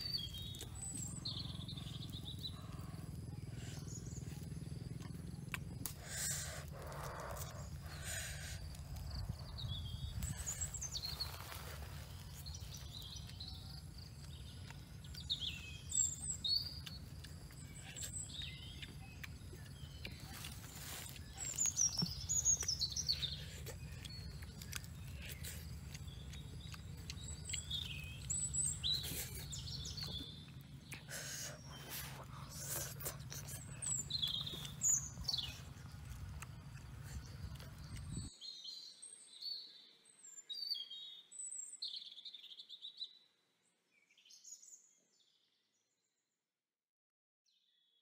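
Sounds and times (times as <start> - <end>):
low background hum: 0.0 - 38.3
birds chirping: 0.0 - 43.1.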